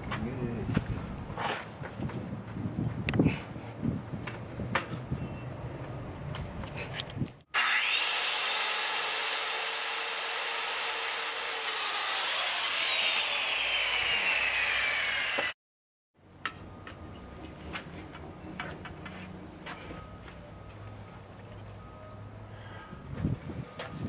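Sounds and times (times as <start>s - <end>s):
circular saw cutting wood: 7.5s - 15.6s.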